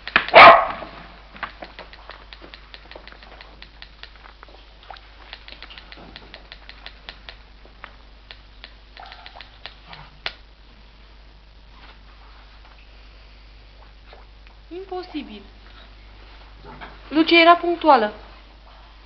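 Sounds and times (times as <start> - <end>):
short sharp clicks: 1.4 - 4.3, 4.9 - 7.4, 8.2 - 10.4.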